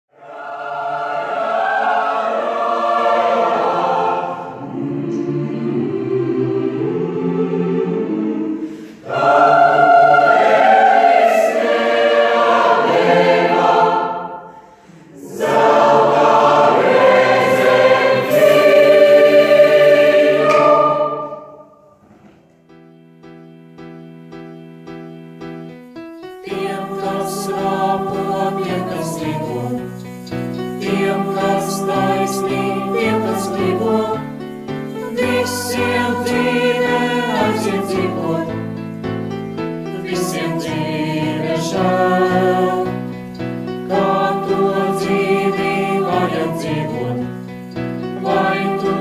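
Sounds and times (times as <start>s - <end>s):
choir singing: 0.1s - 22.1s, 26.3s - 49.0s.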